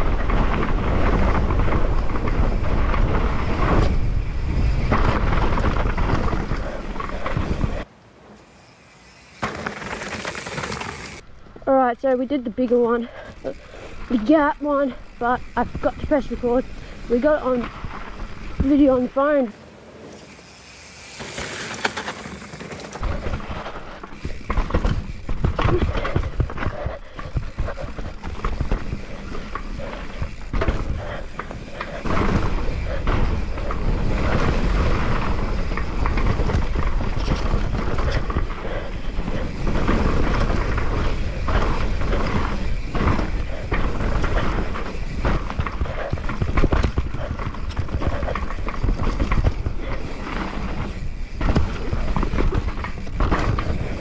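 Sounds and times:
bike knocks and rattles: 0:00.0 - 0:07.8, 0:09.3 - 0:11.2, 0:21.1 - 0:54.0
mountain bike tyre and air rush: 0:00.0 - 0:11.6, 0:12.5 - 0:54.0.

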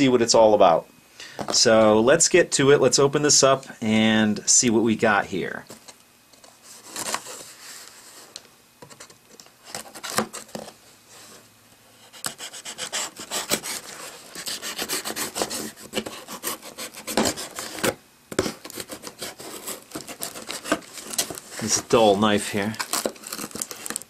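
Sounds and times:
knife sawing through packing tape: 0:12.0 - 0:24.0.

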